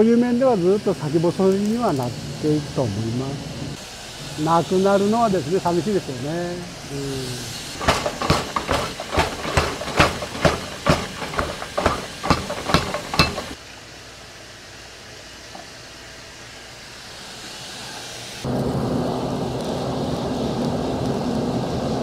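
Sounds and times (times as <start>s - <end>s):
steam hissing off hot steel: 0.0s - 22.0s
power hammer pounding steel: 7.7s - 13.6s.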